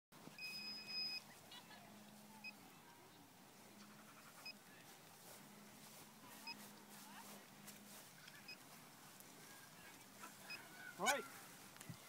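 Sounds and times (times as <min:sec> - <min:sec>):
electronic beeps: 0:00.4 - 0:01.2.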